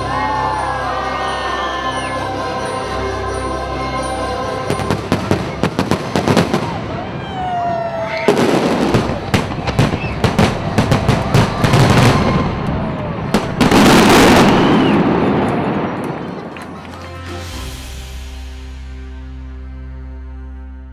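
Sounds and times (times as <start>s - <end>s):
fireworks bangs and crackles: 4.7s - 17.0s.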